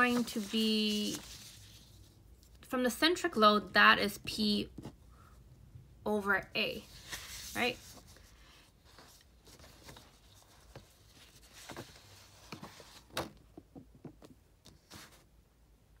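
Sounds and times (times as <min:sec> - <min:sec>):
paper rustling: 0:00.0 - 0:02.1, 0:06.9 - 0:13.2.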